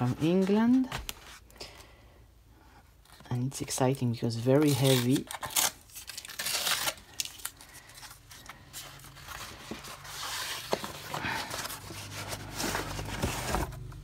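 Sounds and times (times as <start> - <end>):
rustling and scraping cardboard: 0.0 - 1.5, 8.0 - 14.0
cardboard mailer tearing: 4.5 - 8.0.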